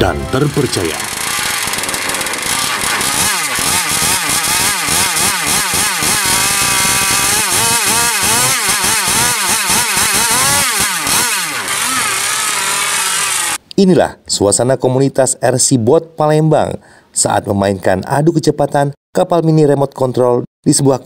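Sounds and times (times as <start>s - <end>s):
model boat engine revving: 0.4s - 13.6s.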